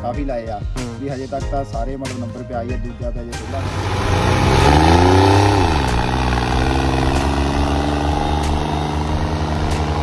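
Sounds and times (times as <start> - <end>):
tractor diesel engine under load: 3.4 - 10.0.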